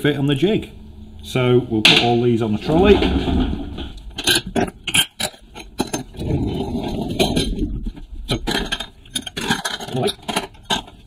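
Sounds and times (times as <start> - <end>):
trolley wheels rumbling: 0.0 - 4.3
metal pipes clinking: 1.8 - 6.1.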